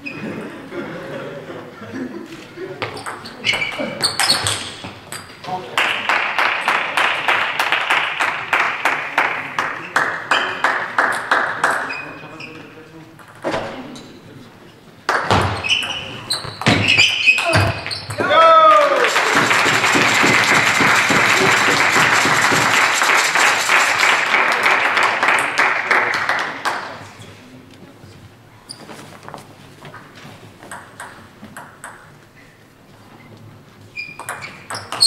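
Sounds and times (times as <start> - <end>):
spectators applauding: 5.7 - 11.9, 18.4 - 27.0.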